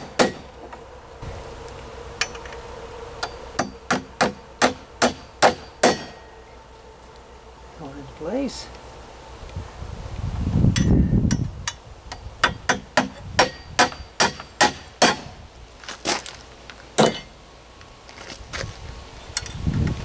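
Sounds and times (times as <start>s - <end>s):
hammer striking nails into metal: 0.0s - 0.4s, 3.6s - 6.2s, 12.4s - 15.3s, 17.0s - 17.3s.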